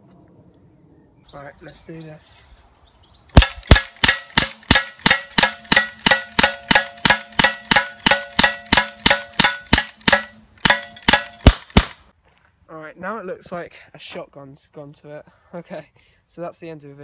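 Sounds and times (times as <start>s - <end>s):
bb pistol shots: 3.3s - 12.0s.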